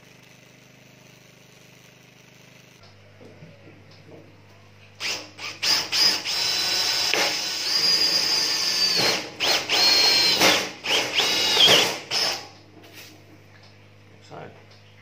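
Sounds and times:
cordless drill boring through steel: 5.0 - 12.5.

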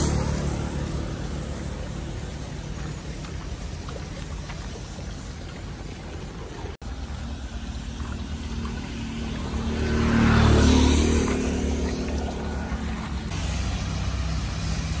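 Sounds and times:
car engine rumble: 0.0 - 15.0
tyre hiss on wet road: 13.2 - 15.0.

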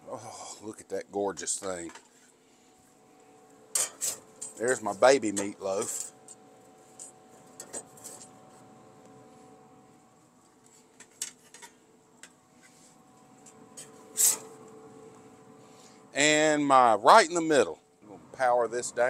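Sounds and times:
grill fan humming: 0.0 - 19.0
metal spatula scraping grill grates: 3.8 - 4.2, 7.8 - 8.3, 13.8 - 14.6.

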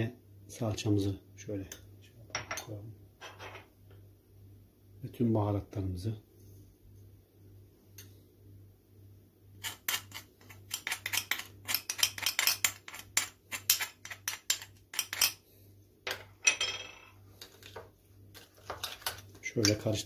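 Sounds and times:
metal spoon clinking on porcelain: 16.1 - 17.1.

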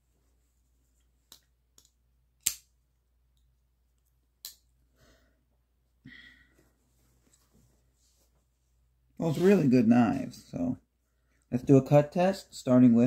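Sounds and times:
person exhaling: 6.0 - 6.7
soft rustle: 6.5 - 10.6.

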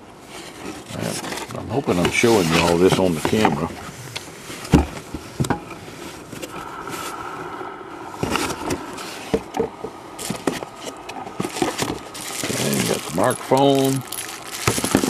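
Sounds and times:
paper and plastic rustling: 0.2 - 6.6, 10.2 - 15.0.

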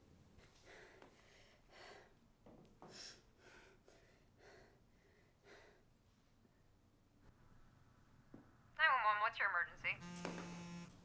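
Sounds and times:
person breathing faintly: 0.4 - 2.2, 2.8 - 6.7.

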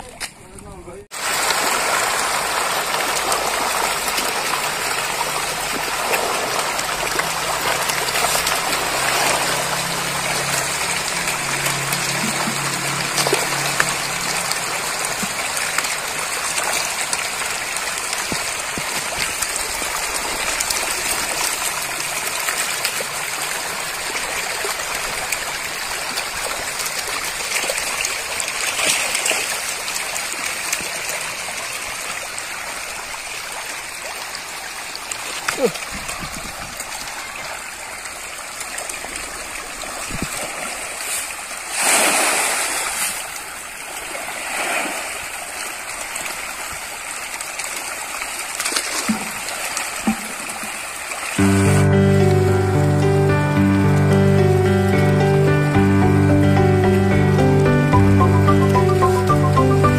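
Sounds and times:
fish splashing at water surface: 1.2 - 51.4.

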